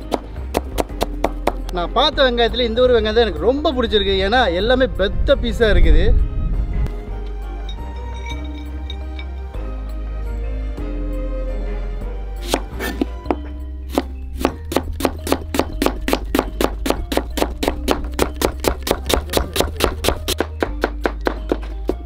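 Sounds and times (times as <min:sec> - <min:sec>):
background music: 0:00.0 - 0:22.0
knife chopping on cutting board: 0:13.9 - 0:22.0.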